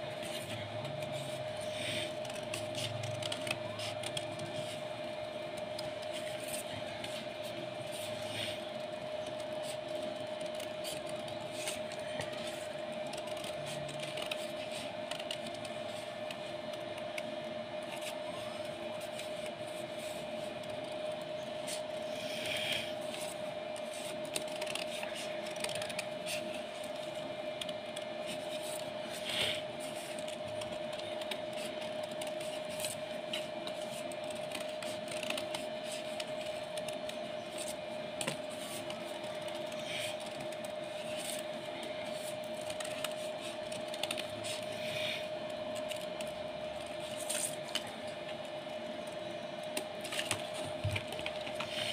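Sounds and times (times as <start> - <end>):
steady hum: 0.0 - 51.9
scissors cutting paper: 0.2 - 48.5
paper rustling: 46.8 - 48.2.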